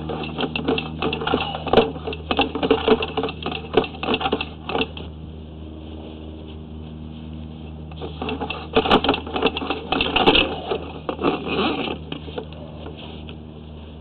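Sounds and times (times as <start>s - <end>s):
cable rattling clatter: 0.0s - 5.1s, 7.9s - 12.5s
low electrical hum: 0.0s - 14.0s.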